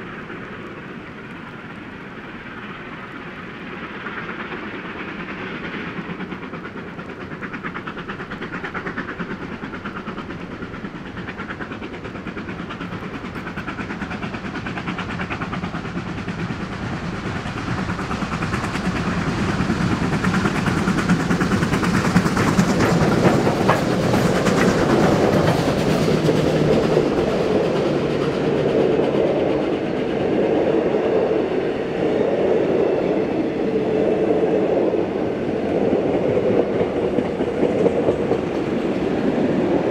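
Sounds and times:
steam locomotive exhaust beats: 0:00.0 - 0:39.9
wheels clicking over rail joints: 0:03.8 - 0:30.2, 0:35.0 - 0:39.9.

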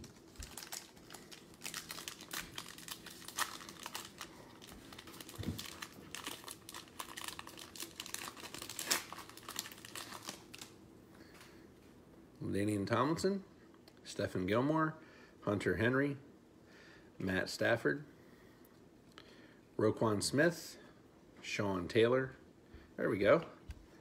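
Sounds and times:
plastic wrapper crinkling and tearing: 0:00.0 - 0:10.8.

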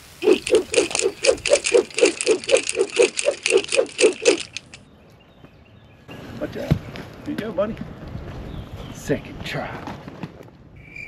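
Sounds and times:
rapid rhythmic rattling: 0:00.0 - 0:04.8.

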